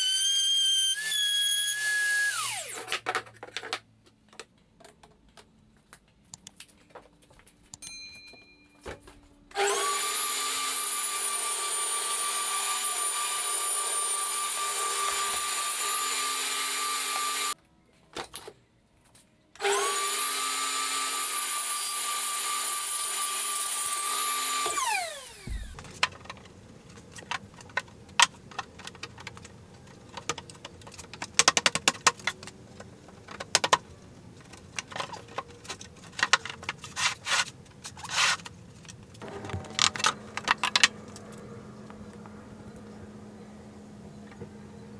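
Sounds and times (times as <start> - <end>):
table saw and vacuum whine: 0.0 - 2.9, 9.5 - 17.6, 19.6 - 25.8, 39.2 - 44.9
wooden pieces clicking and knocking: 25.8 - 41.4.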